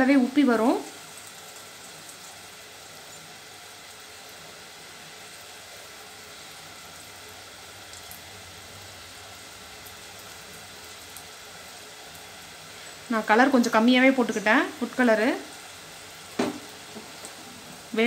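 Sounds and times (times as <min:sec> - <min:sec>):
oil sizzling while deep-frying: 0:00.0 - 0:18.0
faint oil pops: 0:16.4 - 0:17.4.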